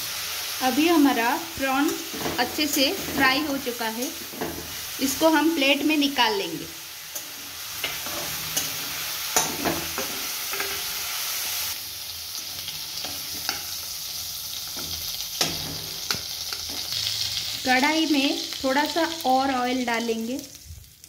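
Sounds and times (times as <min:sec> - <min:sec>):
prawns sizzling in hot oil: 0:00.0 - 0:21.0
spatula scraping pan: 0:01.8 - 0:05.0, 0:07.1 - 0:11.0.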